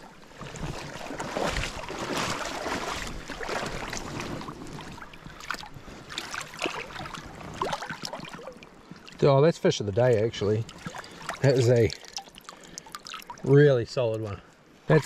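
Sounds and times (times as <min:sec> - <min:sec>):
dog splashing in shallow water: 0:00.4 - 0:09.2.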